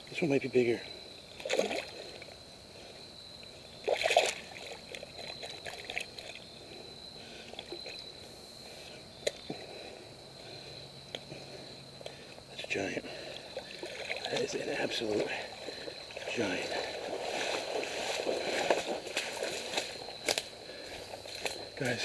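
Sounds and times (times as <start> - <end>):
water splashing and sloshing: 1.3 - 2.4, 3.4 - 8.0, 13.1 - 21.8.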